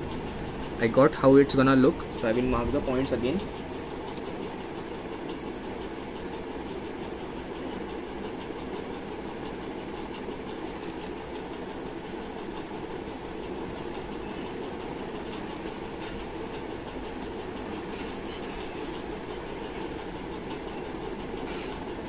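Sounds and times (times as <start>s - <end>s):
low mechanical rumble: 0.0s - 22.0s.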